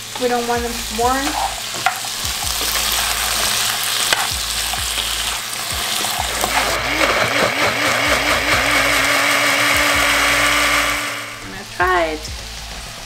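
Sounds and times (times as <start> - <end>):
vegetables sizzling in frying pan: 0.0 - 13.0
blender motor whining: 5.8 - 11.5
utensil clacking: 6.0 - 10.6.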